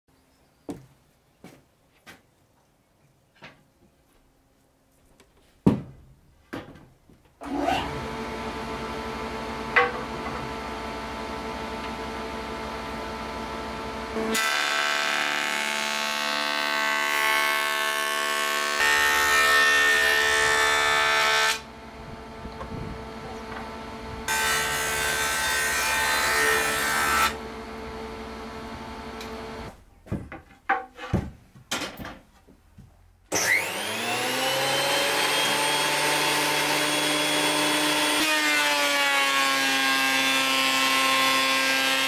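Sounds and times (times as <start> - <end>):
cutterhead planing board: 7.4 - 21.7, 22.5 - 29.6, 33.3 - 42.0
wooden knocks: 9.8 - 10.4, 30.0 - 33.0.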